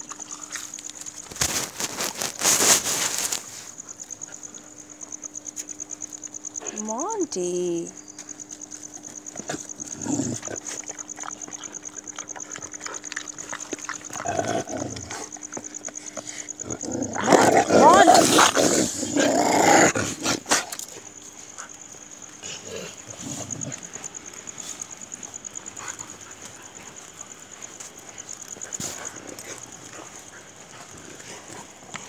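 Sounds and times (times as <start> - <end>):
crickets chirping: 0.0 - 32.0
dogs growling: 9.0 - 32.0.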